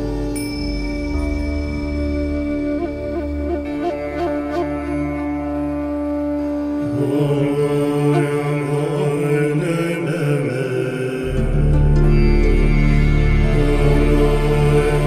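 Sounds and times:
sustained held tones: 0.0s - 9.9s
low chanting: 6.5s - 15.0s.

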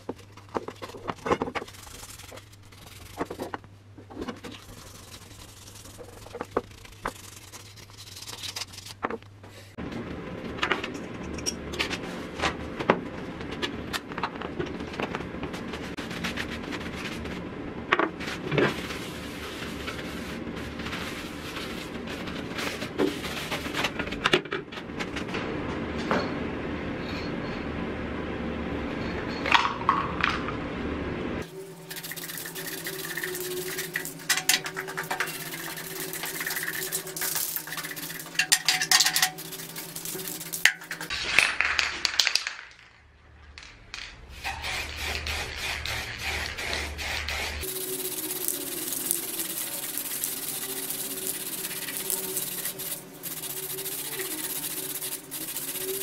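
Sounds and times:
spray-paint cans hissing: 31.4s - 41.2s, 44.3s - 56.0s.

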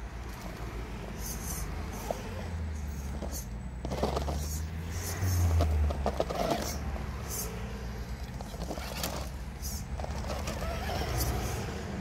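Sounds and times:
tyres scraping on stone: 3.1s - 7.4s, 8.3s - 11.6s.

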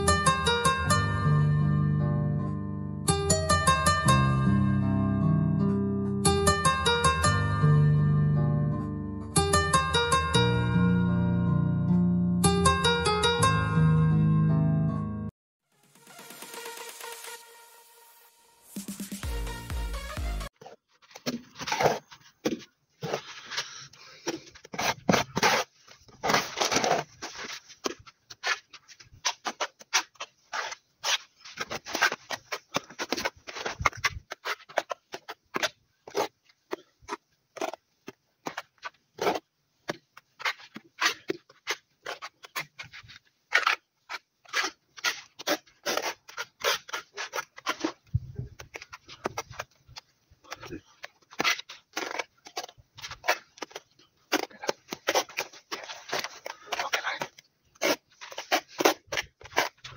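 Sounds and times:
trowel scraping and slapping mortar: 20.6s - 59.9s.

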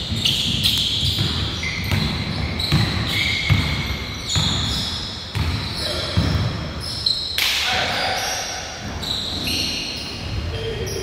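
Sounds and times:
basketball bouncing on wooden floor: 0.0s - 6.6s
sneakers squeaking: 0.0s - 11.0s.

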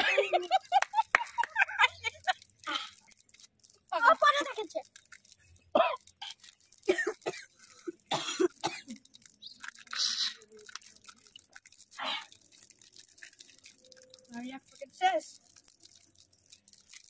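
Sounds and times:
people coughing: 0.0s - 2.1s, 5.8s - 9.0s.

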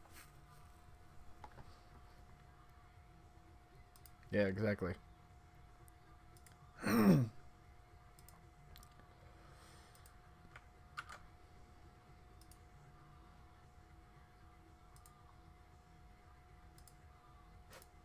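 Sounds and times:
faint keyboard or mouse clicks: 3.9s - 4.3s
man groaning: 6.8s - 7.3s.

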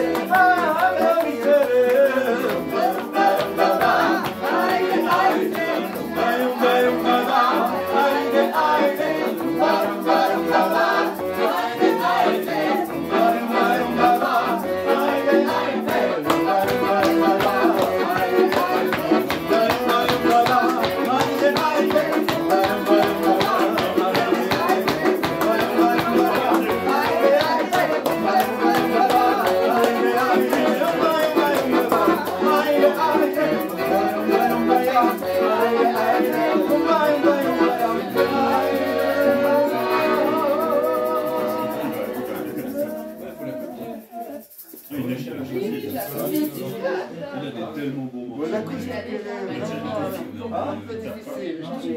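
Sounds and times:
voices singing along: 0.0s - 44.9s, 48.5s - 51.9s
accordion: 0.0s - 47.1s
acoustic guitar: 0.0s - 47.2s.

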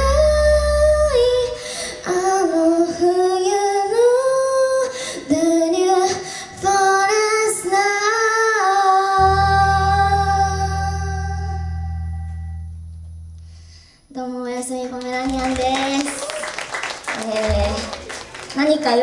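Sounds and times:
person singing unaccompanied: 5.4s - 12.4s.

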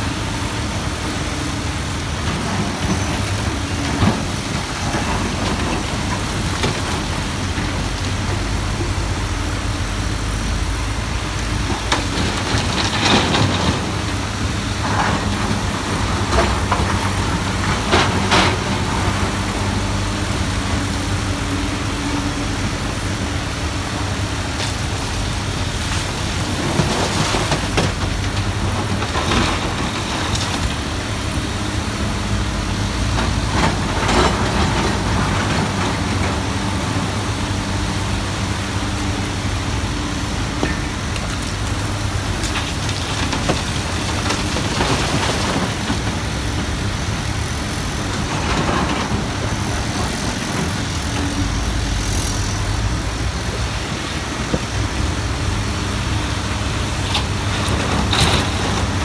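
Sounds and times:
diesel engine drone: 0.0s - 59.0s
excavator bucket clanking on stone: 57.0s - 59.0s.

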